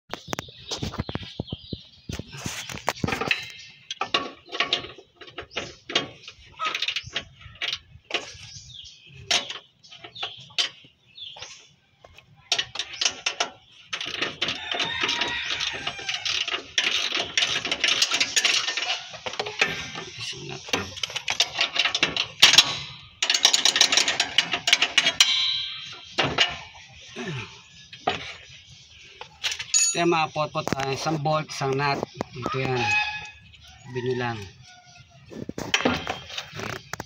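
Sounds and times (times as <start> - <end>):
hand tools clicking on bolts: 12.5 - 26.8.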